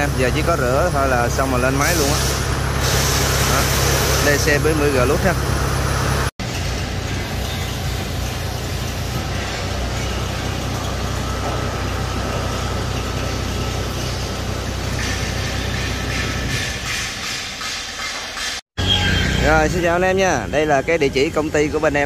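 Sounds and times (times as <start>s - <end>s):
diesel engine idling: 0.0s - 16.5s.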